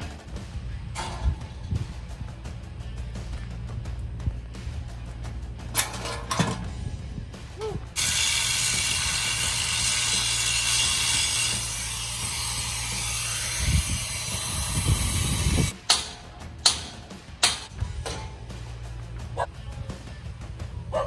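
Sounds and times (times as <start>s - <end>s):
low rumbling: 0.0s - 8.0s
metal gate rolling on track: 0.9s - 1.7s, 5.6s - 6.8s, 8.0s - 18.5s.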